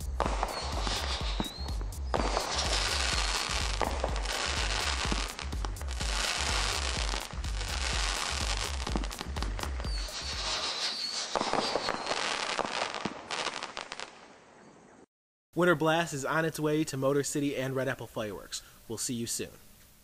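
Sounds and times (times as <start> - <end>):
music with heavy bass: 0.0 - 10.6
firework whistle: 0.0 - 14.0
fireworks crackling and reports: 0.0 - 14.1.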